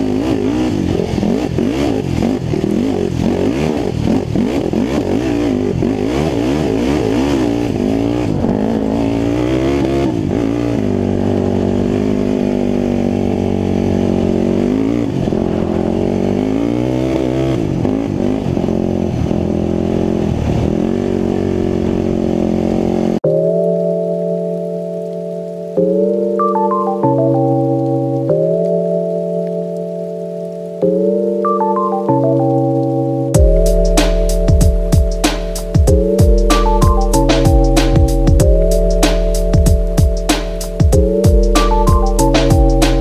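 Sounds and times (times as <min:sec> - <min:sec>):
off-road vehicle engine revving: 0:00.0 - 0:23.2, 0:33.4 - 0:43.0.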